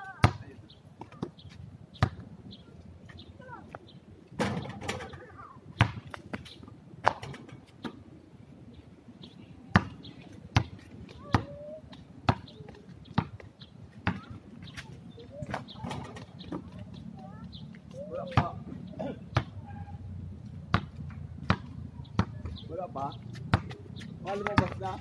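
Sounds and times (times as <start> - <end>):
basketball bouncing on concrete: 0.2 - 1.3, 2.0 - 2.2, 5.8 - 7.3, 9.7 - 11.7, 12.3 - 14.7, 19.4 - 19.6, 20.7 - 22.6, 23.3 - 25.0.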